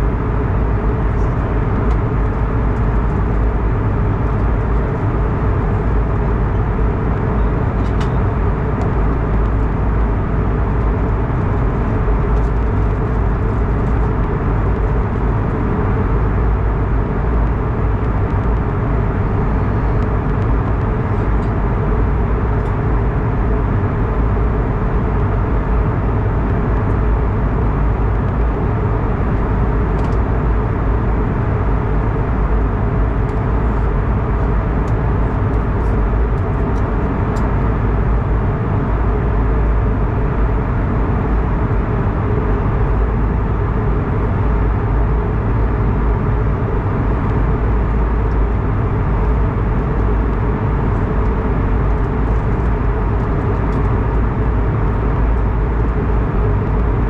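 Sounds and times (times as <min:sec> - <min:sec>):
aircraft engines humming: 0:00.0 - 0:57.0.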